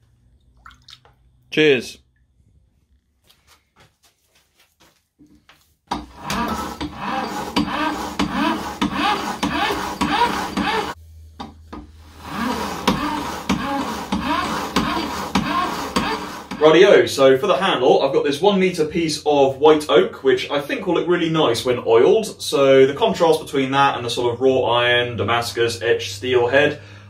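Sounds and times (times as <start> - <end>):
buffing wheel motor humming: 5.9 - 16.8
object rubbing on buffing wheel: 6.1 - 11.0, 11.9 - 16.8.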